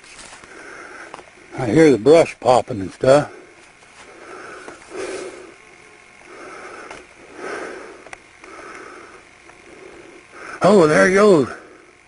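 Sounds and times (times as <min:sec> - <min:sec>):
person breathing: 0:00.2 - 0:01.3, 0:03.3 - 0:10.6.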